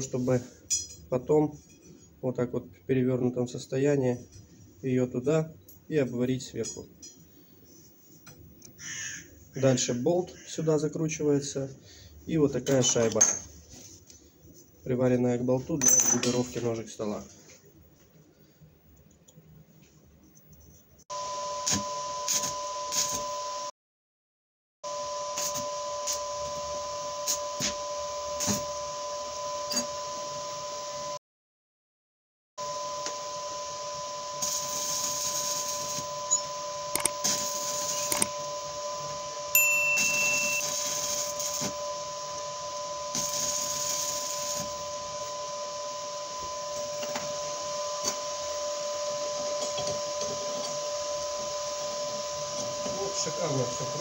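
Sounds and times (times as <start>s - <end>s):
electric arc welding hiss and crackles: 21.7s - 23.3s, 25.4s - 26.5s, 27.2s - 28.7s, 34.3s - 38.4s, 40.0s - 41.9s, 42.8s - 45.3s.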